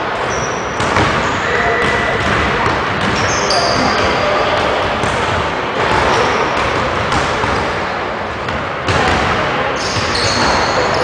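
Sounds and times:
gym background noise: 0.0s - 11.0s
basketball bouncing on hardwood floor: 0.8s - 1.2s, 1.8s - 3.2s.

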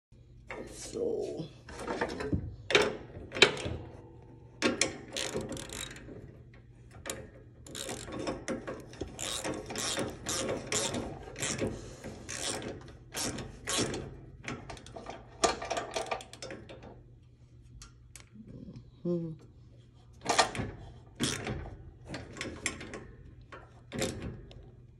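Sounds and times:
socket ratchet wrench clicking: 5.1s - 6.0s, 7.7s - 8.4s, 9.1s - 11.6s, 12.3s - 13.9s.

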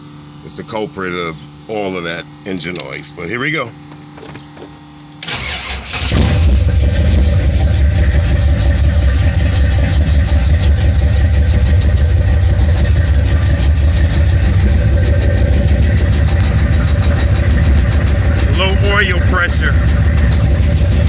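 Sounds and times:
car engine starting and idling: 5.2s - 21.0s.

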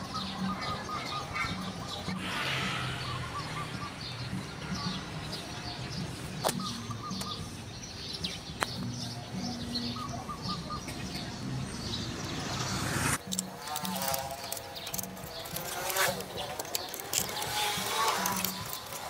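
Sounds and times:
small birds chirping: 0.0s - 19.0s
sharp clicks: 13.2s - 19.0s.

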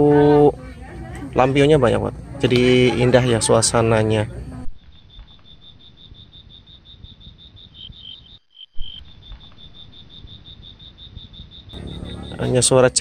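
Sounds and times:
crickets chirping: 0.0s - 13.0s
lower-pitched cricket: 0.0s - 13.0s.

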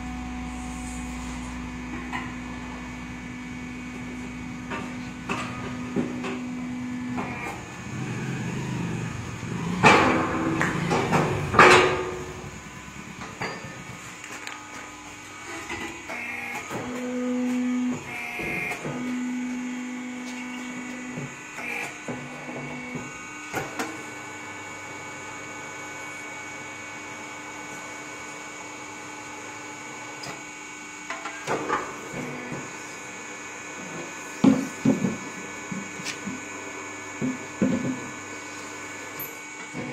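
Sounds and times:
machine humming: 0.0s - 25.9s
loud metal clanks: 9.8s - 12.4s.

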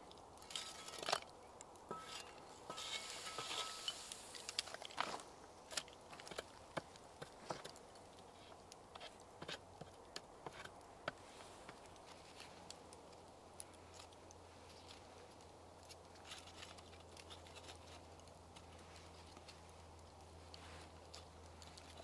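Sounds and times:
wood shavings dropping: 1.9s - 6.5s.

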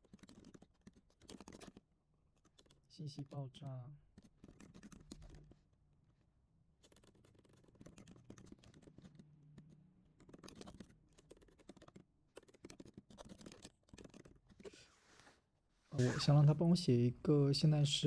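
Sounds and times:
faint computer keyboard typing: 0.0s - 5.6s, 6.8s - 14.8s.

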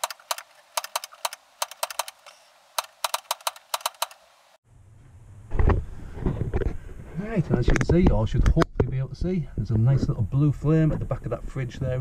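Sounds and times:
gas igniter clicking rapidly: 0.0s - 4.2s.

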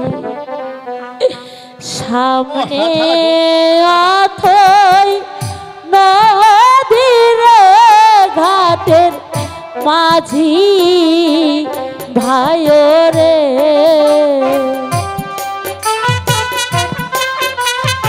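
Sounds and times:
musical accompaniment: 0.0s - 18.0s
woman singing folk song: 1.8s - 14.8s.

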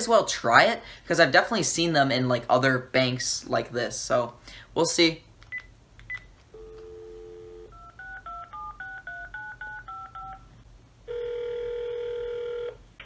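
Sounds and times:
phone dial tone: 6.6s - 10.5s, 11.1s - 12.8s
phone ringback tone: 6.6s - 10.5s, 11.1s - 12.8s
touch-tone keypad beeps: 7.7s - 10.5s.

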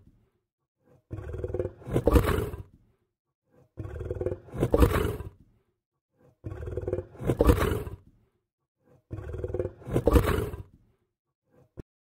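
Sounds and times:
lion roaring: 0.9s - 2.8s, 3.7s - 5.4s, 6.3s - 8.0s, 9.0s - 10.8s.

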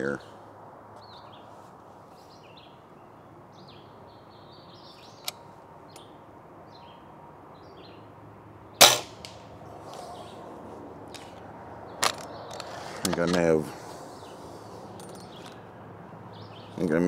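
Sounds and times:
birds chirping: 0.0s - 17.0s
air rifle shot: 8.8s - 9.4s.

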